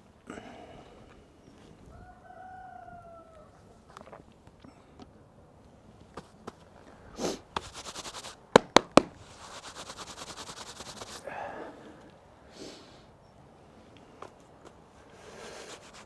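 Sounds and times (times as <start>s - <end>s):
rushing hissing noise: 7.1s - 8.5s, 9.2s - 11.4s
fire sharp pops: 8.5s - 9.3s.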